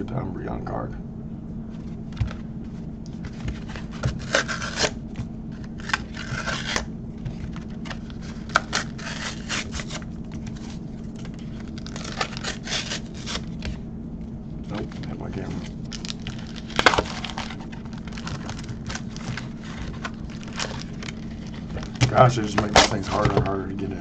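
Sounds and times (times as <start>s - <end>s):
plastic packaging crinkling: 3.2s - 5.0s, 5.6s - 13.7s, 14.7s - 23.5s.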